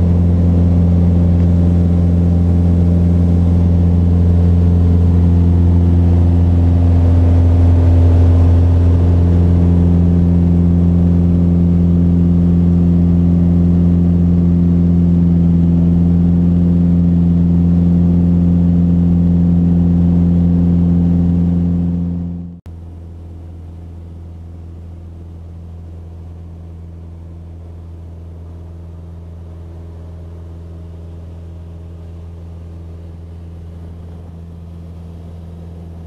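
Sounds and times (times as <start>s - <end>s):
aircraft engine and propeller droning: 0.0s - 23.6s.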